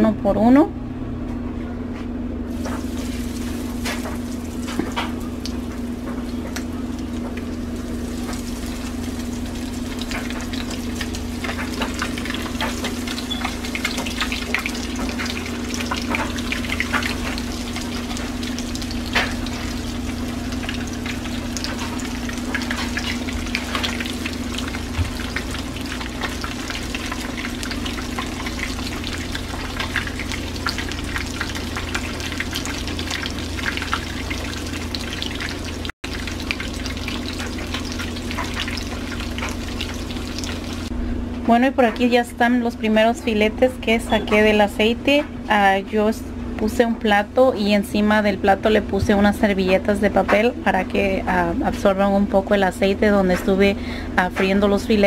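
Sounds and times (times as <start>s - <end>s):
fish frying in oil: 2.5s - 40.9s.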